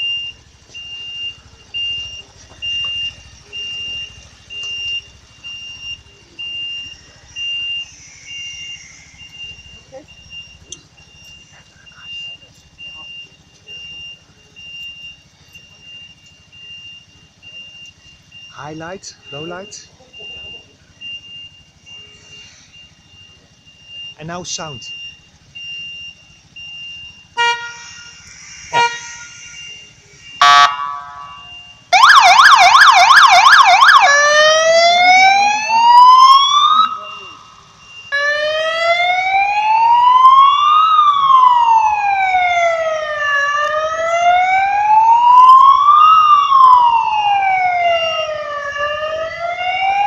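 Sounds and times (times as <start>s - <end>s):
short beeps: 0.0s - 27.4s, 28.8s - 34.0s, 35.0s - 38.2s
siren slow wail: 0.0s - 50.0s
siren warbling yelp: 27.3s - 50.0s.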